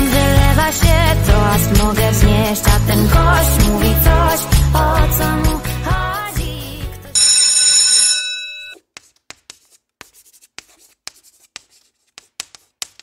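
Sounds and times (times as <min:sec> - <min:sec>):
bell-like chime: 0:07.2 - 0:08.8
chalk tapping and scratching on blackboard: 0:08.8 - 0:13.0.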